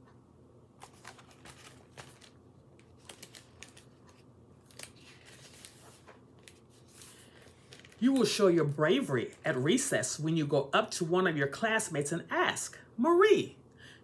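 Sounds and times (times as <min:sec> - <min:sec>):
book pages rustling: 0:00.7 - 0:09.6.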